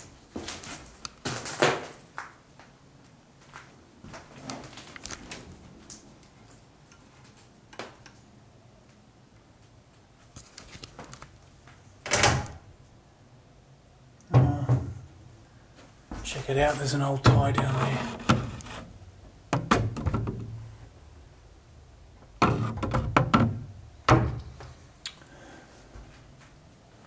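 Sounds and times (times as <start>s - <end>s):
wooden wardrobe doors knocking: 14.3s - 15.0s, 19.5s - 20.6s, 22.4s - 24.5s.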